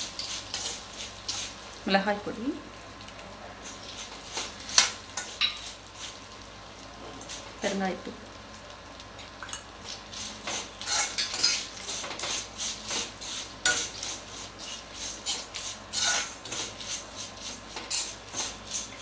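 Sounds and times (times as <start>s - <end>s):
metal spoon scraping metal pan: 0.2s - 1.5s, 10.5s - 19.0s.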